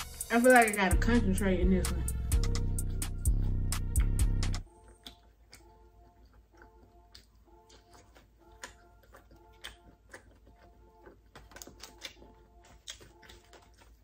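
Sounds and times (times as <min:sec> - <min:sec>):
faint background music: 0:00.0 - 0:14.0
chewing smacks: 0:02.4 - 0:14.0.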